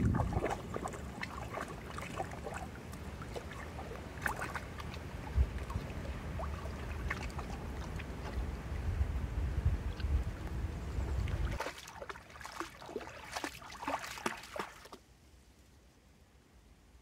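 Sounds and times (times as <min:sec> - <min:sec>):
dog splashing through water: 0:00.0 - 0:08.5, 0:11.1 - 0:15.0
wind rumble on microphone: 0:00.0 - 0:11.7.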